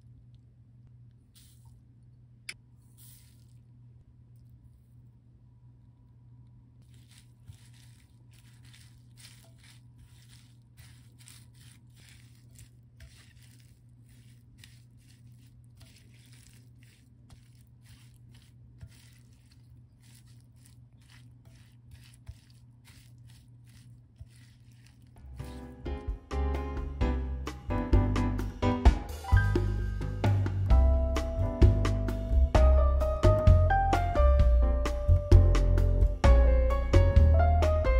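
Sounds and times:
low steady hum: 0.0s - 27.7s
spatula tossing herbs in bowl: 2.9s - 3.6s, 6.8s - 26.3s.

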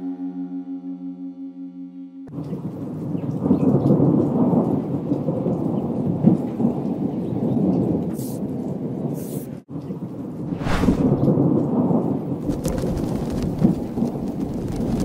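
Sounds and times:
rain: 2.3s - 15.0s
thunder rumbling: 10.4s - 15.0s.

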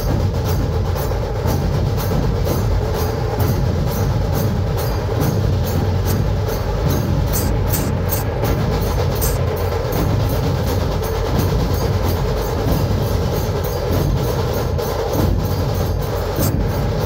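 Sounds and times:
barrel drums beaten with sticks: 0.0s - 17.0s
sharp drum strikes cracking: 5.2s - 10.6s.

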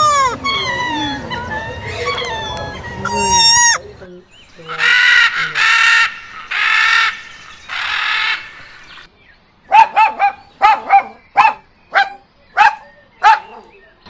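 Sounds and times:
macaws squawking: 0.0s - 3.9s, 4.5s - 9.1s
dog barking: 9.7s - 13.7s.

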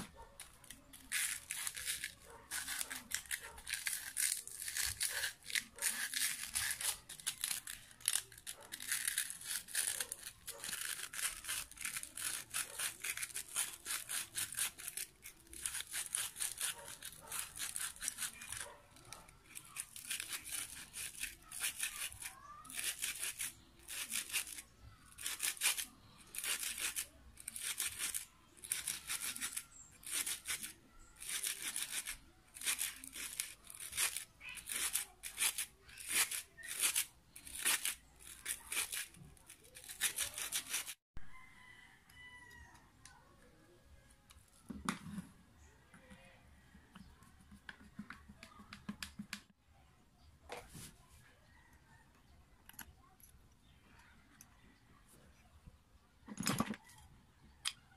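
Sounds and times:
screwdriver rasping on screws: 0.0s - 41.0s.

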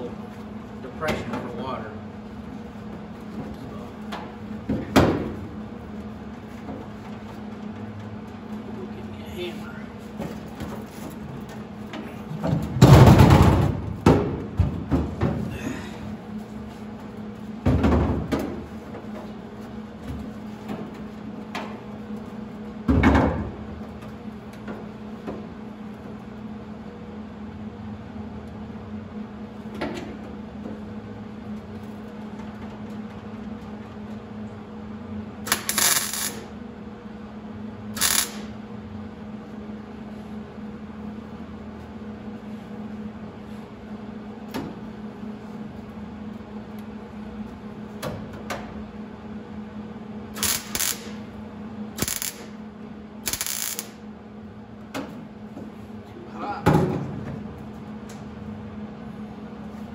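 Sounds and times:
steady low hum: 0.0s - 59.9s
crackling bursts of welding: 35.4s - 36.5s, 38.0s - 38.5s, 50.4s - 51.2s, 52.0s - 52.6s, 53.2s - 54.0s.

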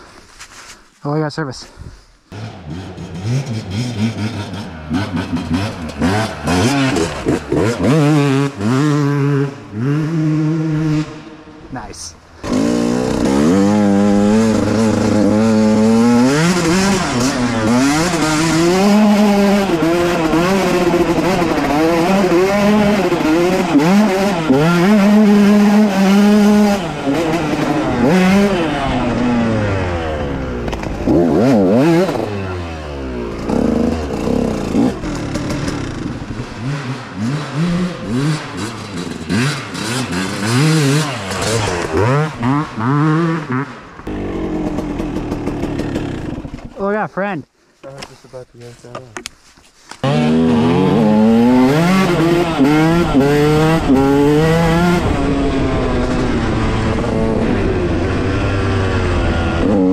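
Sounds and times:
dirt bike engine revving: 2.3s - 47.0s, 50.0s - 59.9s.

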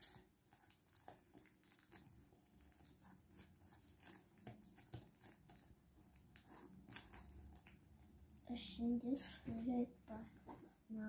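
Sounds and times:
fingers tapping paper: 2.7s - 7.8s.

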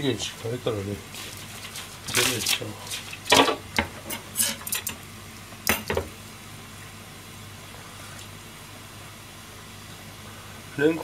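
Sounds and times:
pot simmering hiss: 0.0s - 11.0s.

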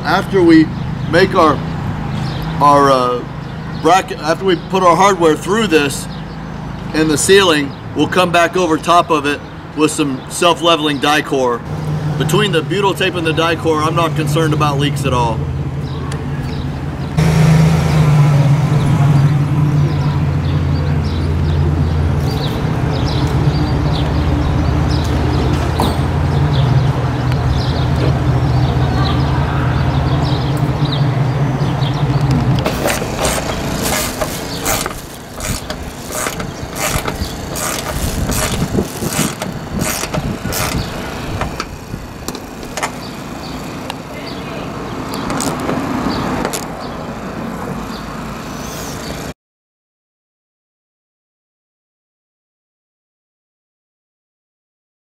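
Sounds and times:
vehicle engine idling: 11.7s - 49.3s
nut driver ratchet clicks: 32.6s - 43.0s.

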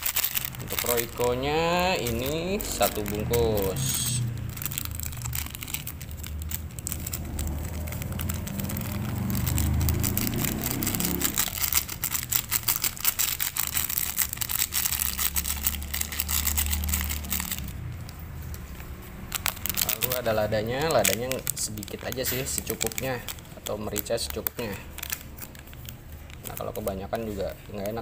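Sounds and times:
plastic sachet crinkling: 0.0s - 28.0s
low rumble: 1.4s - 11.9s.

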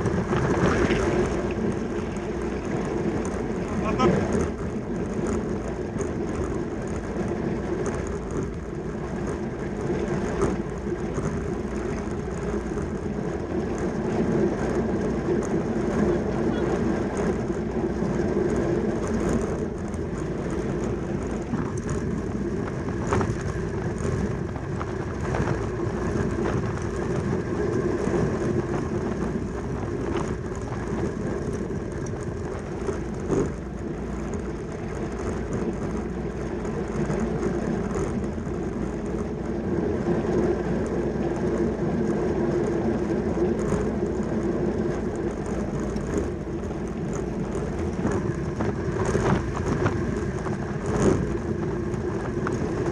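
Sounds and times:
bicycle tyres whirring: 0.0s - 52.9s
faint bicycle clicks: 4.2s - 52.9s.

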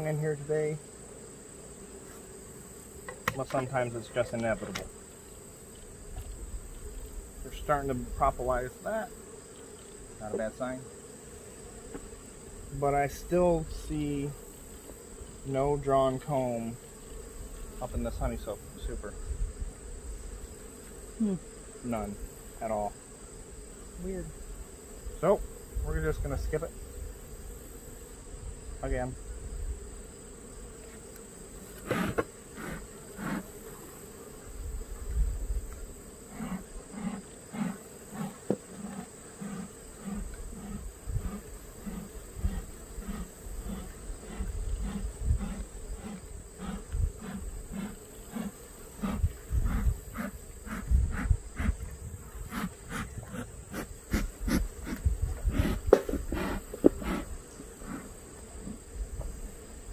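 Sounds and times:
bees buzzing: 0.0s - 59.9s
hive boxes clicking and knocking: 3.0s - 5.0s, 55.6s - 57.3s.

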